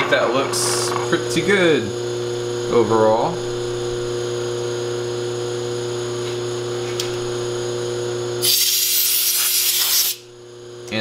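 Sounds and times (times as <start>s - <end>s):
milling machine humming and whining: 0.0s - 8.4s, 10.2s - 11.0s
compressed air hiss: 8.4s - 10.2s.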